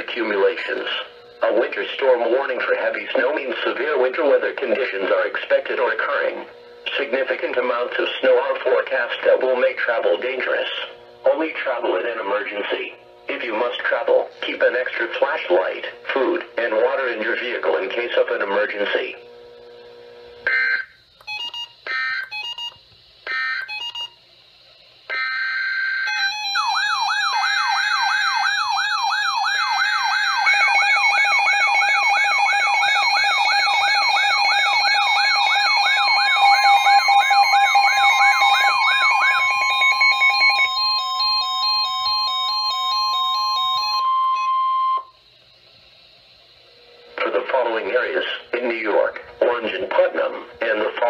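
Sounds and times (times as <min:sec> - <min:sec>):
rapid beeping: 0:00.0 - 0:24.2, 0:25.1 - 0:45.2
warbling siren: 0:20.4 - 0:21.0, 0:21.9 - 0:22.5, 0:23.3 - 0:24.1, 0:25.1 - 0:45.2
digital data bursts: 0:20.4 - 0:24.2, 0:25.1 - 0:45.3
steady alert tone: 0:33.8 - 0:45.1.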